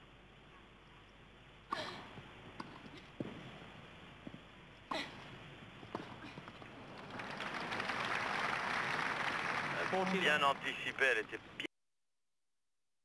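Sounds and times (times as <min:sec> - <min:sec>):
crowd applause: 0:06.8 - 0:11.2.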